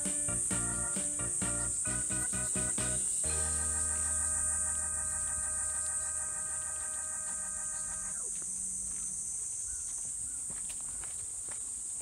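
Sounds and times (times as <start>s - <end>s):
low hum: 0.0s - 9.0s
cicadas droning: 0.0s - 12.0s.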